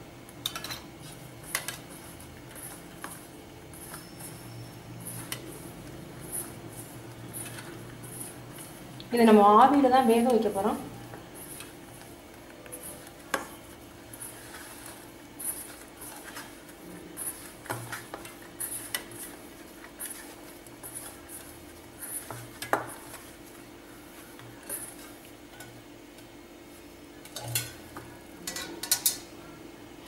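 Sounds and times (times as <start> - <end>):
faint steady hum: 0.0 - 30.0
fingers rubbing dough in bowl: 1.9 - 25.1.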